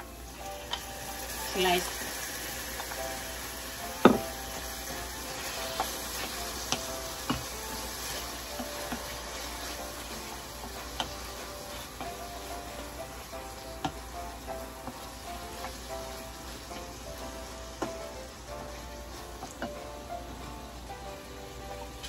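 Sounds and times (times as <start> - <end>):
meat sizzling in hot oil: 0.0 - 22.0
wooden spoon knocking on pan: 4.0 - 4.5, 5.4 - 12.9, 13.8 - 15.8.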